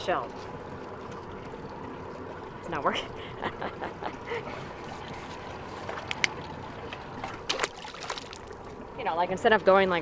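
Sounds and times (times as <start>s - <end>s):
water slopping against boat hull: 4.4s - 8.9s.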